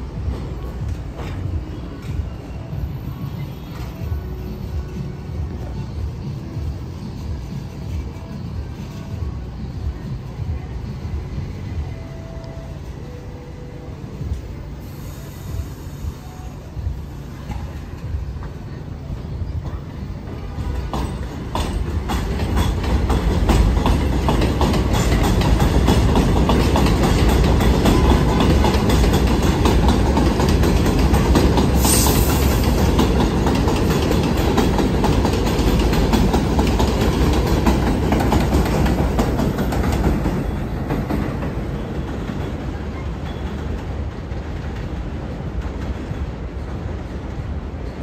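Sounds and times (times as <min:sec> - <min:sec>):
train rumbling on elevated track: 0:00.0 - 0:48.0
wheels clacking over rail joints: 0:20.4 - 0:43.9.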